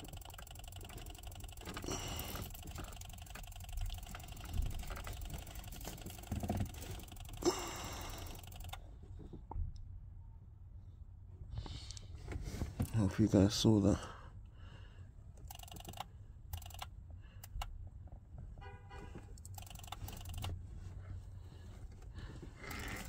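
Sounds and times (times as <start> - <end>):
background hiss and hum: 0.0 - 18.0.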